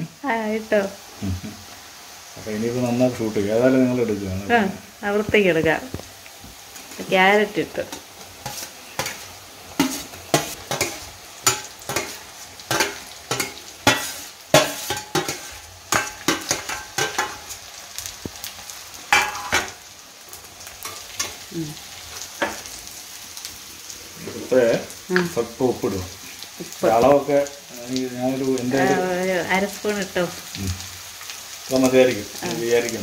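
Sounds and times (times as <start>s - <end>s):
vegetables sizzling in oil: 0.0s - 33.0s
spatula scraping a pan: 7.9s - 17.6s, 19.1s - 19.8s.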